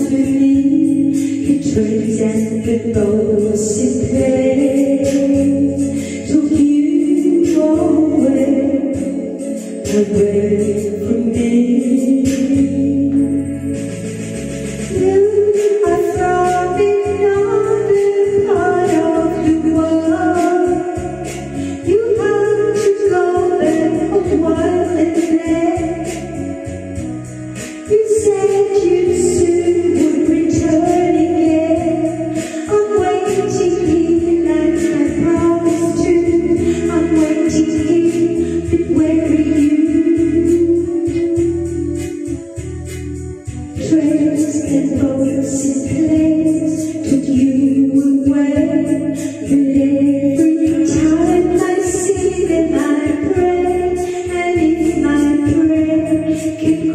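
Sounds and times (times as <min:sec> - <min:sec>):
karaoke backing track: 0:00.0 - 0:56.9
woman singing a ballad: 0:00.0 - 0:56.9.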